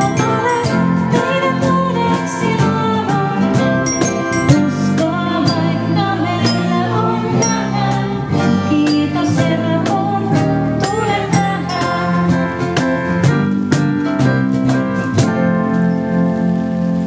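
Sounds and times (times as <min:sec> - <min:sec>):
woman singing: 0:00.0 - 0:12.8
cajon beat: 0:00.0 - 0:17.0
electric bass: 0:00.0 - 0:17.0
glockenspiel notes: 0:03.4 - 0:10.0, 0:10.8 - 0:13.7.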